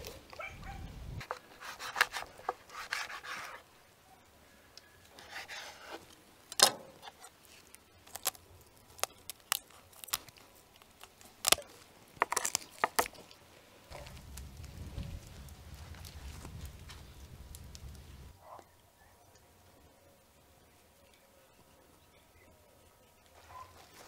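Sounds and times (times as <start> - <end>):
wood fire rumbling: 13.9 - 18.4.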